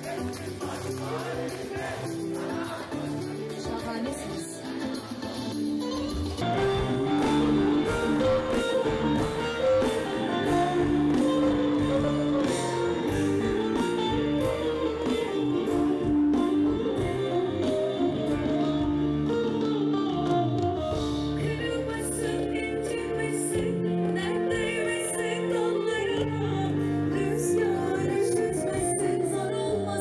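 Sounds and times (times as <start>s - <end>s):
guitar: 0.0s - 30.0s
live band music: 0.0s - 30.0s
woman singing: 21.4s - 30.0s.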